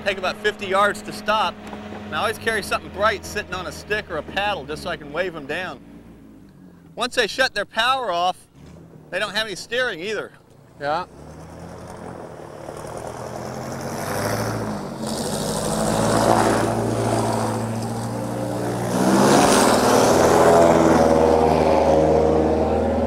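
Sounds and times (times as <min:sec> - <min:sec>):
airboat engine and propeller droning: 0:00.0 - 0:06.2, 0:12.4 - 0:23.0.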